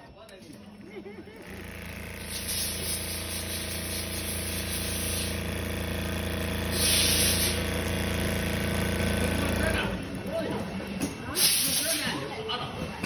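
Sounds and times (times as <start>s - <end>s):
sewing machine humming: 0.5s - 11.0s.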